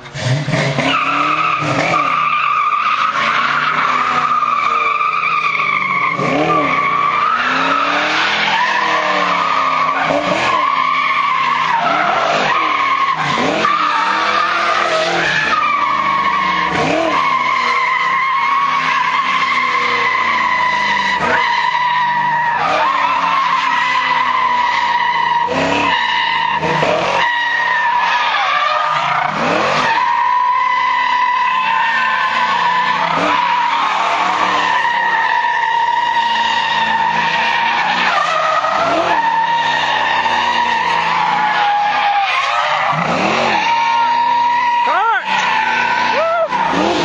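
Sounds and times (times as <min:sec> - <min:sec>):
car engine revving: 0:00.0 - 0:47.0
tyres squealing: 0:00.8 - 0:47.0.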